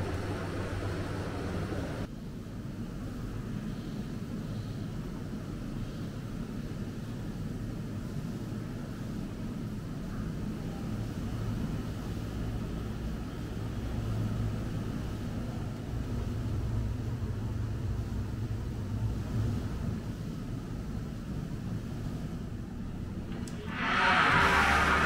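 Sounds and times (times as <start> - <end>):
steady low rumble: 0.0 - 2.1.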